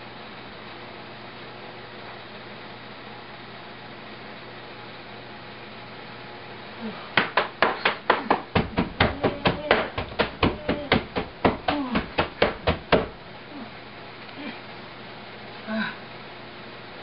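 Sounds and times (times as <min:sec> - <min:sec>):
rapid blows on a bed: 0:07.1 - 0:13.3.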